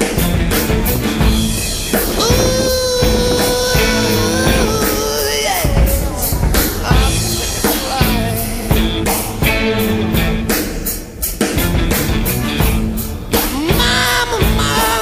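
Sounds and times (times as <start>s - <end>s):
drum kit beating: 0.0s - 15.0s.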